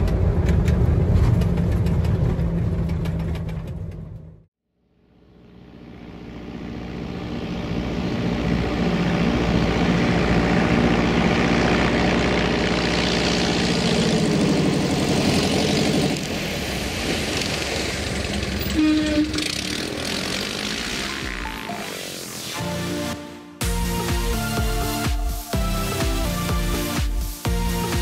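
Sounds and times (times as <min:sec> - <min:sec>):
light plane engine droning: 0:04.8 - 0:16.2.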